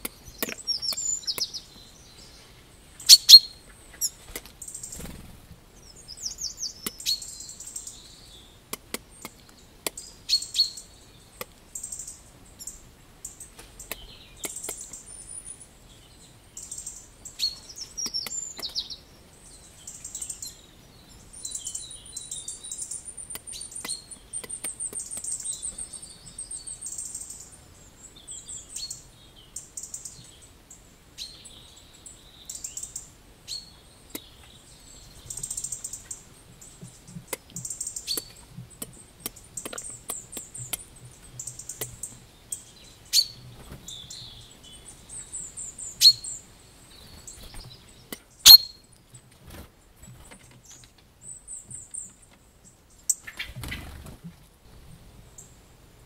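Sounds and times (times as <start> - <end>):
songbirds trilling and chirping: 0.0 - 56.0.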